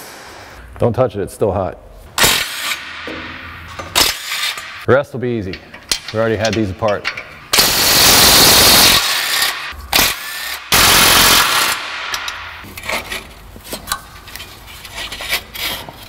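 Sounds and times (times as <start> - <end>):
impact wrench rattling: 2.2 - 4.8, 5.5 - 13.0
knocks and scraping of exhaust pipe: 12.1 - 16.0.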